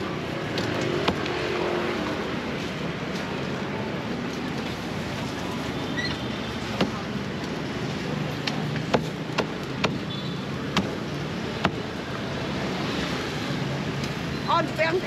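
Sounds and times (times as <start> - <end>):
street traffic hum: 0.0 - 15.0
cleaver chopping on wooden board: 6.8 - 7.0, 8.9 - 10.0, 10.7 - 11.0, 11.6 - 11.8.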